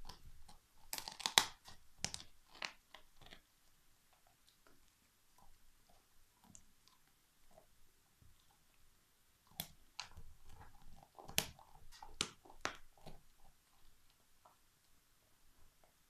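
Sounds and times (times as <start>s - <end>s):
dog teeth cracking bone: 0.0s - 3.4s.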